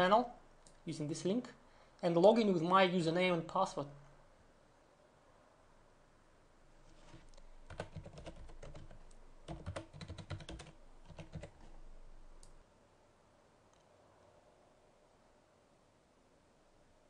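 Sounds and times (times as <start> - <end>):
faint keyboard typing: 6.9 - 12.6.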